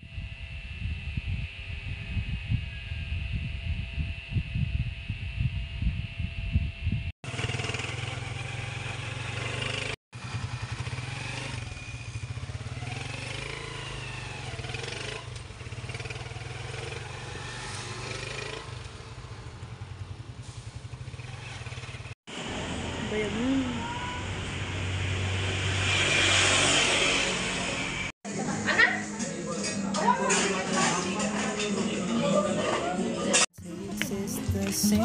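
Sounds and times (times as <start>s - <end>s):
motorcycle engine running: 0.0s - 25.1s.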